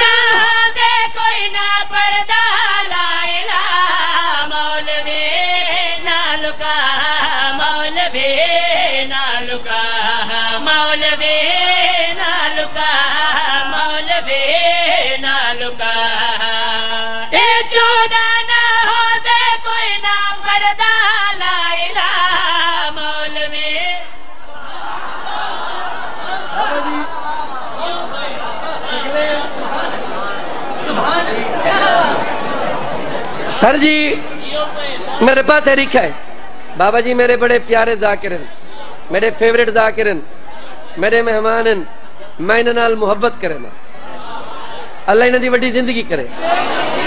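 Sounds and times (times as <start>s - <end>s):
man chanting into a microphone: 0.0s - 24.2s.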